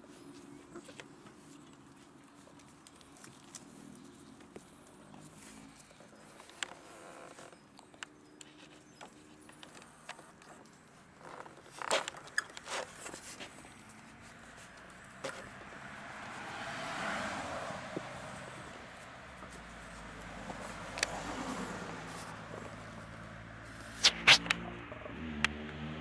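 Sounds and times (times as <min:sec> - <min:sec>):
puppy paws clicking on concrete: 0:00.0 - 0:16.4
passing car tyre noise: 0:11.8 - 0:26.0.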